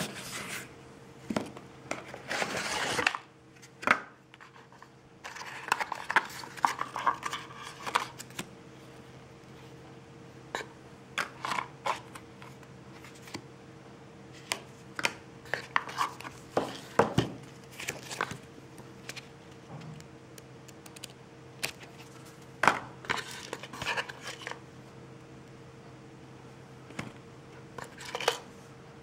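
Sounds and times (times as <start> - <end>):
paper cards rustling and sliding: 1.9 - 8.4, 11.4 - 13.4, 15.4 - 18.4, 20.9 - 24.6.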